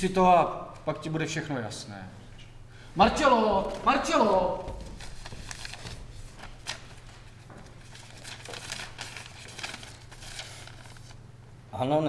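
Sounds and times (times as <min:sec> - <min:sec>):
paper rustling and crinkling: 0:03.5 - 0:11.2.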